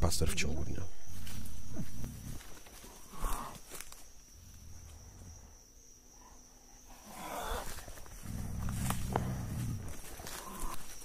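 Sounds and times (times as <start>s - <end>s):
puma hissing: 6.2s - 10.9s
low growl: 6.9s - 10.8s.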